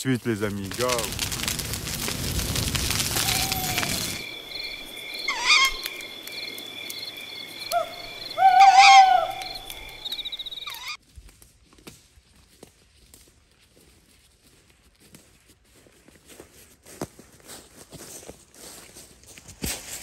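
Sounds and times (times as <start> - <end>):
campfire crackling: 0.0 - 11.9
insects chirping: 0.7 - 11.0
animal calls: 3.1 - 11.0.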